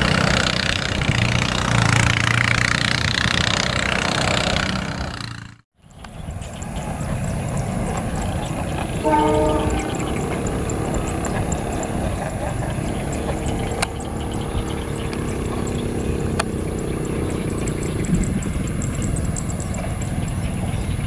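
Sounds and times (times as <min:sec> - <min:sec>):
diesel locomotive engine drone: 0:00.0 - 0:21.0
faint held tone: 0:09.0 - 0:11.2.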